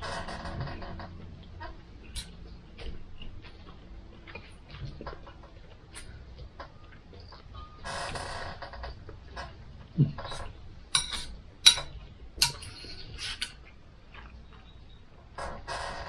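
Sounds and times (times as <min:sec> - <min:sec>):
knife and fork scraping a plate: 0:10.4 - 0:13.6
metal clicks on a plate: 0:11.0 - 0:12.8.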